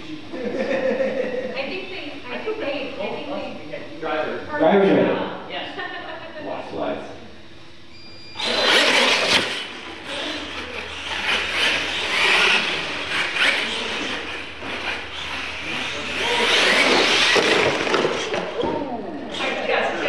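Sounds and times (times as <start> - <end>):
toy trucks racing on concrete: 8.4 - 18.6.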